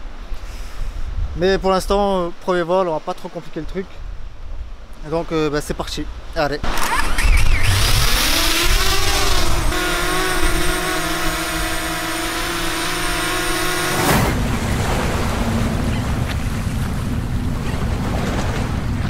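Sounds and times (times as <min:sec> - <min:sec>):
drone propellers whining: 0:06.7 - 0:18.0
steady noise wash: 0:07.6 - 0:17.6.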